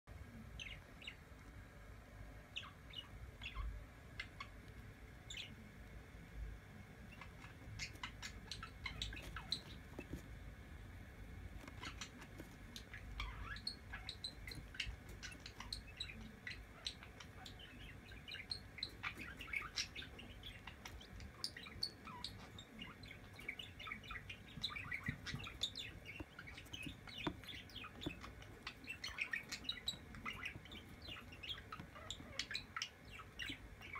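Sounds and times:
chick peeping: 0:02.4 - 0:05.8, 0:06.7 - 0:33.9
beak pecking on plastic: 0:07.1 - 0:33.9.

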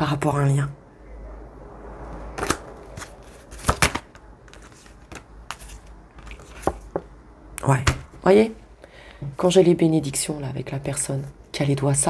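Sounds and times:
cards rustling: 0:02.4 - 0:07.0.

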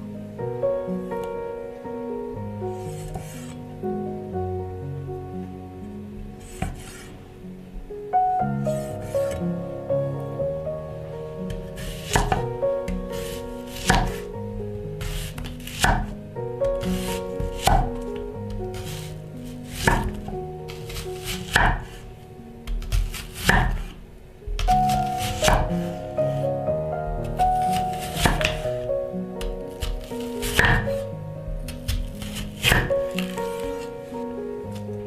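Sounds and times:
background music: 0:00.0 - 0:35.0
knife slicing onion: 0:06.4 - 0:07.1, 0:11.5 - 0:14.3, 0:15.0 - 0:22.0, 0:22.7 - 0:26.0, 0:27.2 - 0:35.0.

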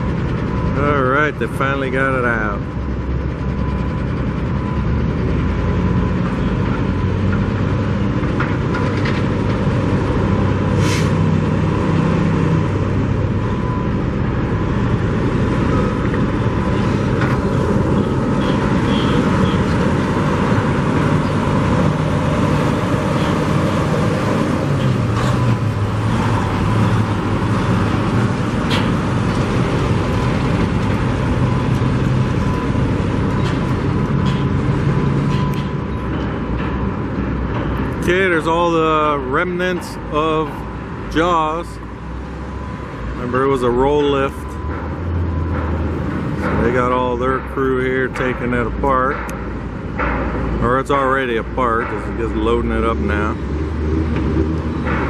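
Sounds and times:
construction site noise: 0:00.0 - 0:55.0
traffic noise: 0:00.0 - 0:55.0
truck diesel engine running: 0:00.0 - 0:55.0.

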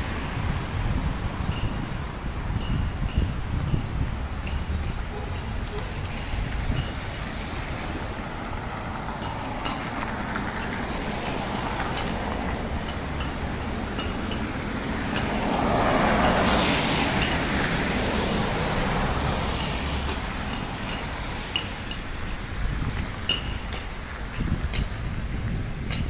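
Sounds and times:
city street traffic: 0:00.0 - 0:26.0
vehicle passing close by: 0:05.1 - 0:21.5.

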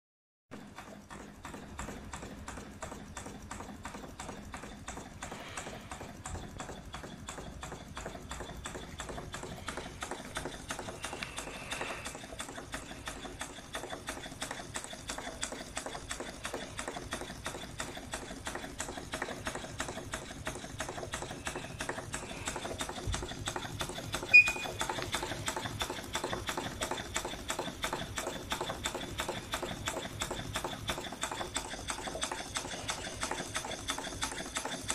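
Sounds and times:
model steam engine clattering: 0:00.6 - 0:34.9.

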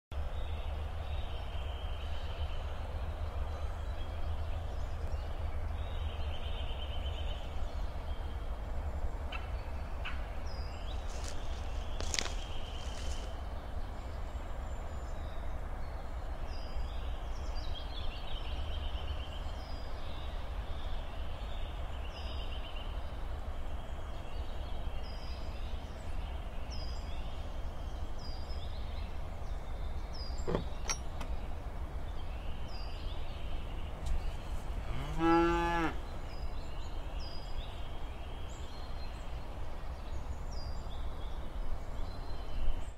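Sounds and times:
small birds chirping: 0:00.2 - 0:42.9
cow mooing: 0:34.9 - 0:36.0.

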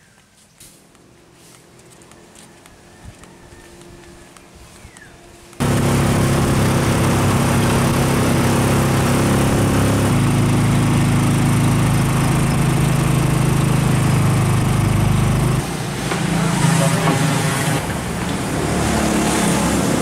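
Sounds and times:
small vehicle engine running: 0:05.6 - 0:20.0.

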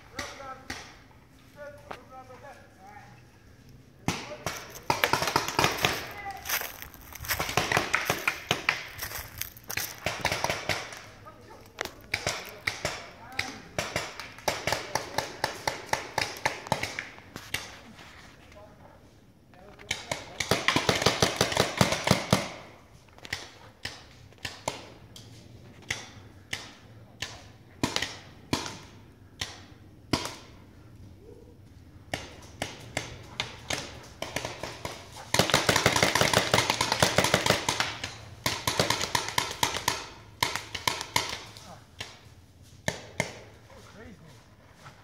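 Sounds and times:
paintball markers firing: 0:04.1 - 0:06.2, 0:07.3 - 0:09.0, 0:10.0 - 0:11.1, 0:11.8 - 0:17.7, 0:19.8 - 0:30.7, 0:32.0 - 0:43.6.

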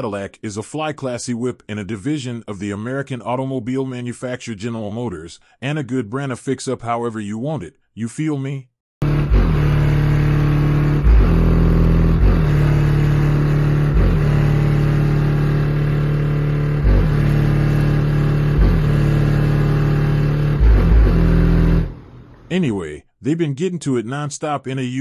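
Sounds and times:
car engine at high revs: 0:09.0 - 0:22.5.

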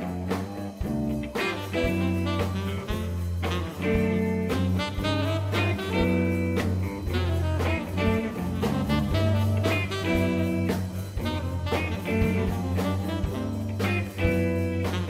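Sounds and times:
instrumental jazz music: 0:00.0 - 0:15.0.

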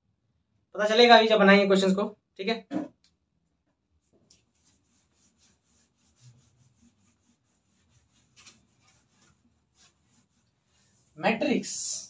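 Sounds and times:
whiteboard being wiped: 0:04.0 - 0:12.0.

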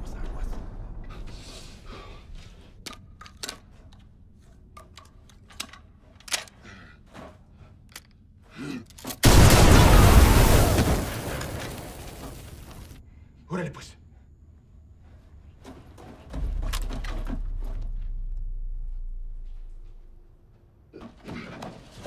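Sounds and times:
low rumble: 0:00.0 - 0:02.8, 0:16.3 - 0:20.9
small clicks and knocks: 0:04.7 - 0:06.6
loud explosion blast: 0:09.2 - 0:11.9.

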